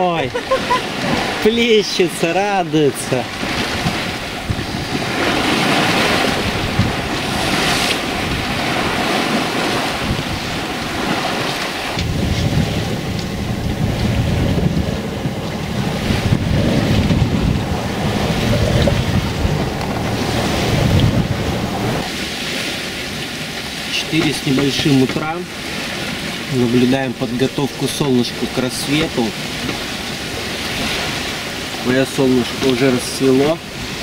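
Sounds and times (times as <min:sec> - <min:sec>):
sea rushing past hull: 0:00.0 - 0:34.0
wind buffeting microphone: 0:02.6 - 0:27.1.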